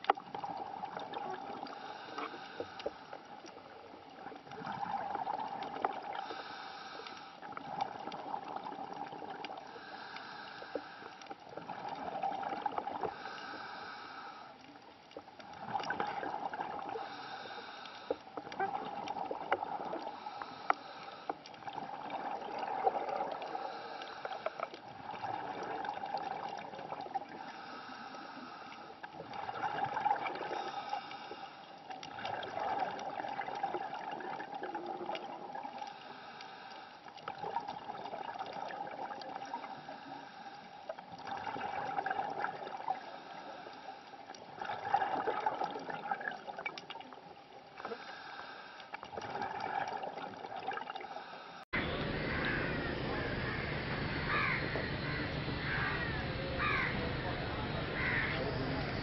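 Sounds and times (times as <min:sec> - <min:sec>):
exhaled bubbles underwater: 0:00.0 - 0:02.6, 0:03.4 - 0:06.6, 0:07.4 - 0:10.1, 0:11.4 - 0:13.4, 0:15.3 - 0:17.8, 0:18.4 - 0:20.4, 0:21.5 - 0:24.0, 0:24.8 - 0:27.8, 0:29.1 - 0:31.3, 0:31.9 - 0:36.0, 0:37.2 - 0:39.9, 0:40.9 - 0:43.2, 0:44.3 - 0:48.1, 0:49.0 - 0:51.1
scuba regulator breathing: 0:01.6 - 0:03.2, 0:06.1 - 0:07.4, 0:09.7 - 0:11.4, 0:13.0 - 0:14.6, 0:16.9 - 0:18.4, 0:20.0 - 0:21.5, 0:23.4 - 0:24.7, 0:27.3 - 0:29.0, 0:30.4 - 0:31.8, 0:35.9 - 0:37.2, 0:39.6 - 0:41.0, 0:43.0 - 0:44.2, 0:47.8 - 0:49.0, 0:51.0 - 0:56.4.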